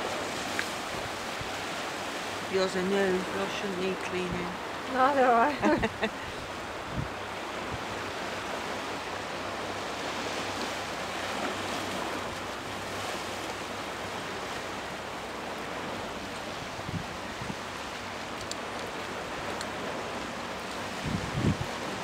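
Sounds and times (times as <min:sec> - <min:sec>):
sea water: 0:00.0 - 0:22.0
wind buffeting microphone: 0:05.8 - 0:08.0, 0:16.4 - 0:17.9, 0:19.1 - 0:22.0.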